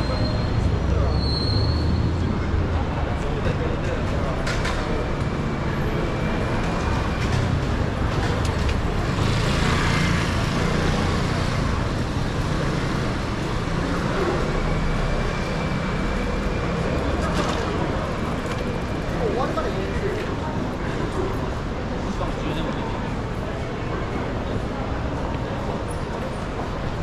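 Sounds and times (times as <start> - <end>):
road traffic hum: 0.0 - 27.0.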